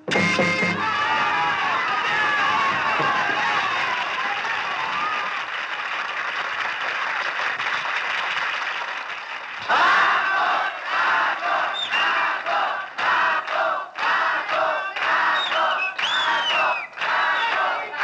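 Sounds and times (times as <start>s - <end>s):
crowd shouting and cheering: 0.0s - 5.8s, 9.6s - 18.0s
audience clapping: 0.8s - 18.0s.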